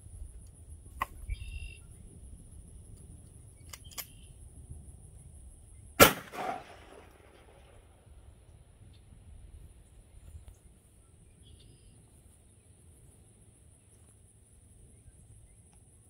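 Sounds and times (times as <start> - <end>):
loud sharp crack: 6.0 - 7.8.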